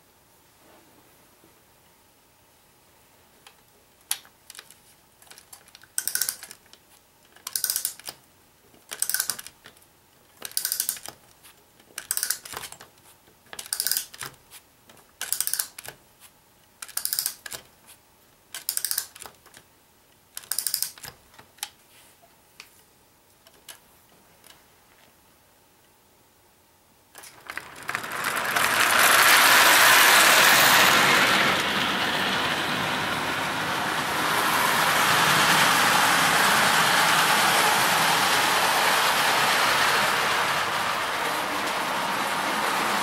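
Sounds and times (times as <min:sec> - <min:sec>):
clockwork ratchet clicking: 0:05.3 - 0:06.6, 0:07.4 - 0:08.1, 0:08.9 - 0:09.5, 0:10.4 - 0:11.1, 0:12.0 - 0:12.6, 0:13.6 - 0:14.3, 0:15.2 - 0:15.9, 0:16.8 - 0:17.6, 0:18.6 - 0:19.3, 0:20.4 - 0:21.1.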